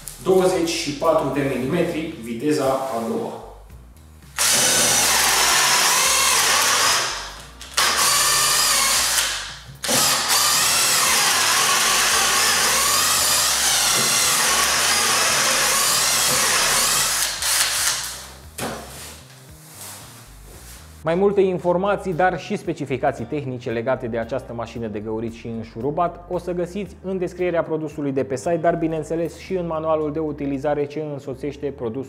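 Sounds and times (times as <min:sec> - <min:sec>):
drill boring into wood: 0:04.4 - 0:18.4.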